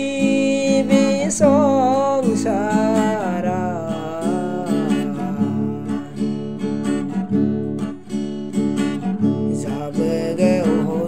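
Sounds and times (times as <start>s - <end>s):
person singing: 0.0s - 7.3s, 9.4s - 11.0s
acoustic guitar strumming: 0.0s - 11.0s.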